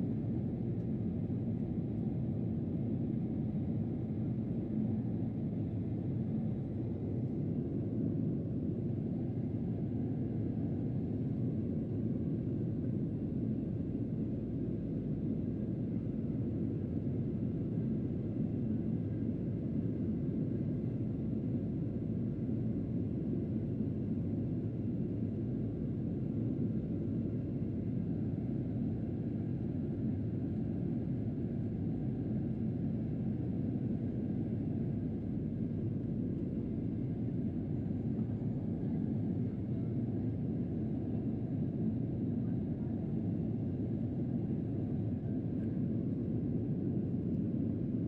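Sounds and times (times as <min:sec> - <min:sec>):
airliner cabin rumble: 0:35.6 - 0:46.0.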